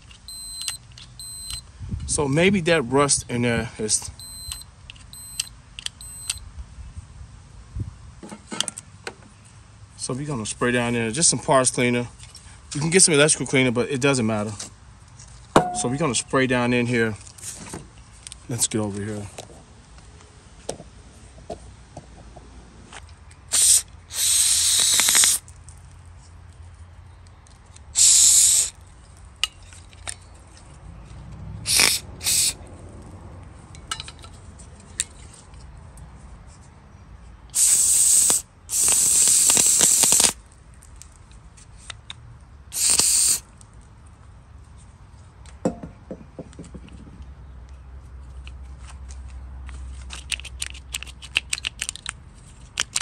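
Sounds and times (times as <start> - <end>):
aerosol spray hissing: 23.5 - 25.4, 28.0 - 28.8, 31.7 - 32.6, 37.6 - 40.4, 42.8 - 43.4.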